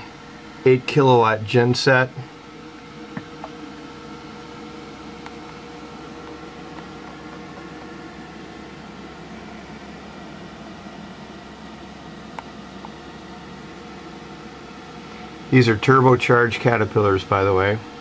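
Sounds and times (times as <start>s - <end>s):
mechanical hum and hiss: 0.0s - 18.0s.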